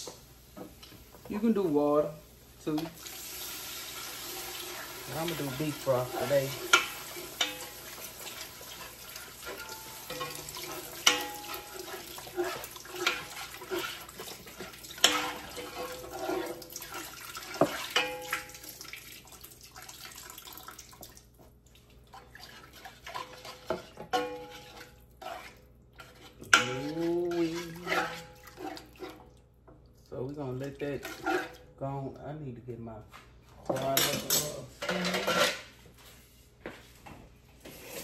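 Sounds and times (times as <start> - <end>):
liquid pouring and hissing in pan: 0.0 - 29.3.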